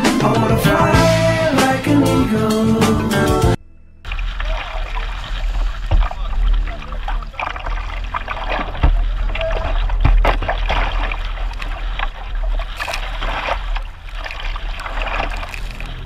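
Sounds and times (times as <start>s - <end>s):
paddle splashing water: 4.1s - 16.0s
waves splashing against canoe: 4.1s - 16.0s.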